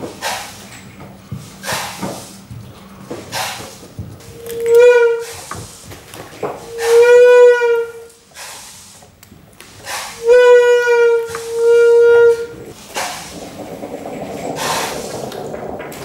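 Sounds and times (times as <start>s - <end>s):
horn-like wind instrument notes: 4.3s - 5.4s, 6.7s - 8.1s, 10.2s - 12.5s.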